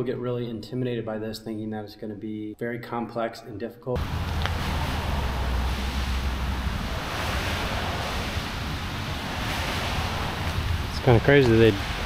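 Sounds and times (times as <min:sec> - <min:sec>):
steady rushing hiss: 0:04.0 - 0:12.0
wind buffeting microphone: 0:04.0 - 0:12.0.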